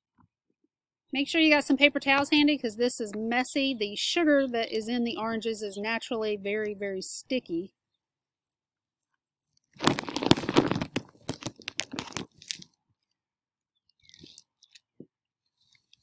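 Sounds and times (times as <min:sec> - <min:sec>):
sheet crinkling in the wind: 0:09.8 - 0:12.6.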